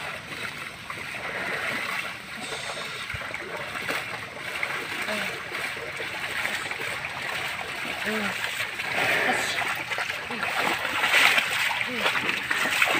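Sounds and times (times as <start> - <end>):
muddy water splashing: 0.0 - 12.9.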